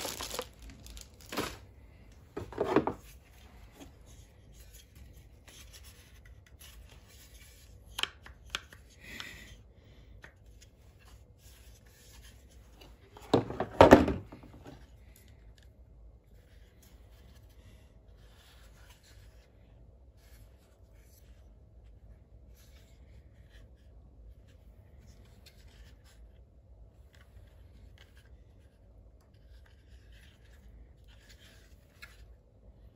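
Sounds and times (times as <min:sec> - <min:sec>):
plastic knocks and clatter: 0:02.3 - 0:03.0, 0:13.2 - 0:14.8.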